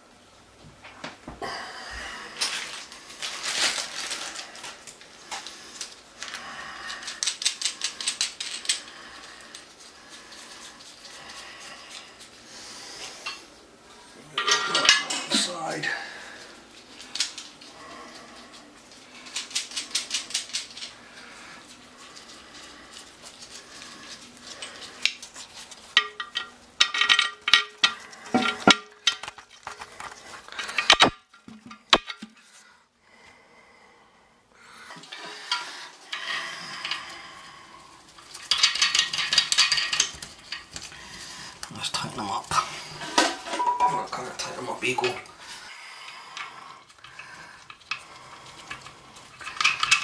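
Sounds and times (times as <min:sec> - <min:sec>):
metal bolts clinking and rattling: 0:14.4 - 0:15.5, 0:25.9 - 0:29.8, 0:38.4 - 0:40.8, 0:48.7 - 0:50.0.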